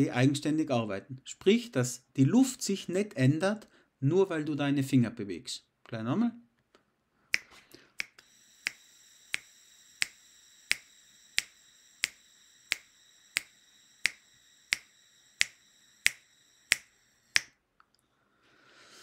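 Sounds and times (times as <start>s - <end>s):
metronome clicking: 7.4s - 17.6s.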